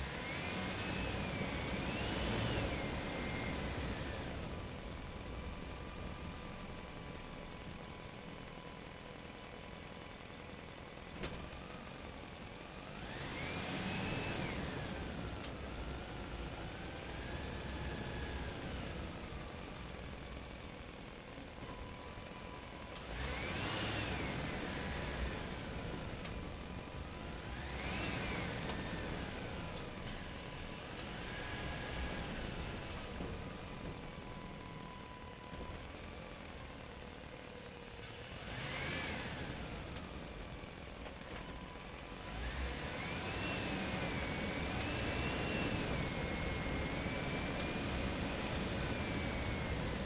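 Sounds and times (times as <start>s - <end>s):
small electric motors whining: 12.8s - 20.1s, 21.5s - 50.0s.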